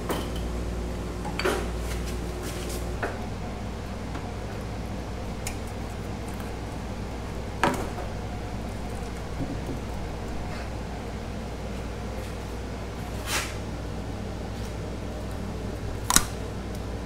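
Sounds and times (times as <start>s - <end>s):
air conditioner buzz: 0.0s - 17.0s.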